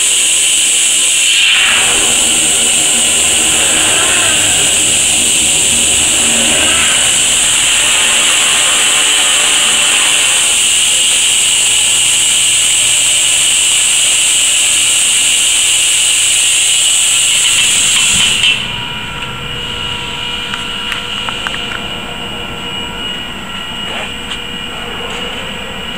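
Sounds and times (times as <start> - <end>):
plasma torch hissing: 0.0 - 18.8
machine hum with steady tones: 0.0 - 25.9.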